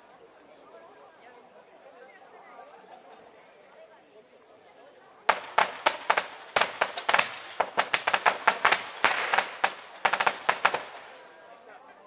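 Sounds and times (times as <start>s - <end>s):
firecrackers banging: 5.3s - 11.4s.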